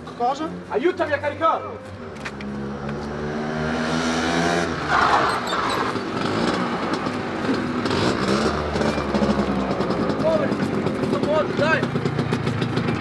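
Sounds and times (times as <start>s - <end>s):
small truck engine running: 5.0s - 13.0s.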